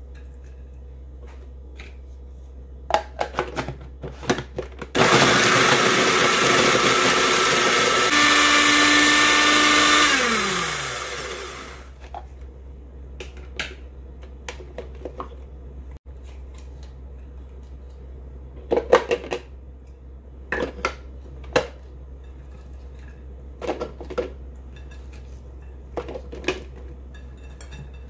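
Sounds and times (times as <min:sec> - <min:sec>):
food processor motor running: 0:05.0 - 0:12.0.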